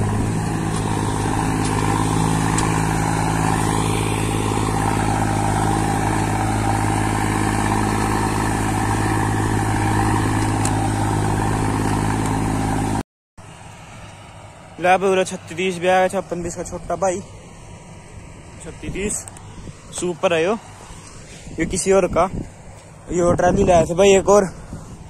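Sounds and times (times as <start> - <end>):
diesel tractor engine running: 0.0 - 25.0.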